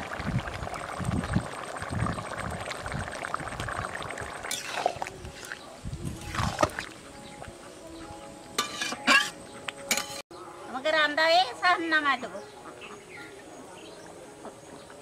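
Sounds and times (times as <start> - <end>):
curry bubbling and gurgling: 0.0 - 6.9
ladle scraping through vegetables: 4.5 - 6.9.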